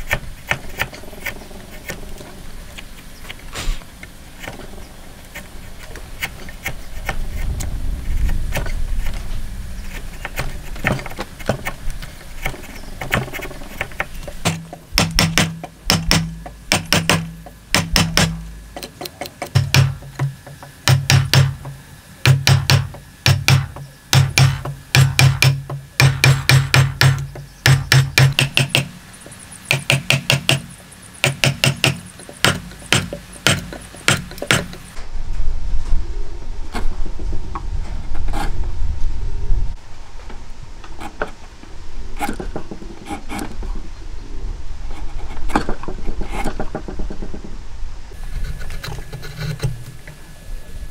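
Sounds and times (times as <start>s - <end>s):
chisel scraping wood: 9.8s - 14.7s, 48.3s - 49.9s
hammer striking chisel: 14.4s - 28.9s, 29.7s - 34.8s.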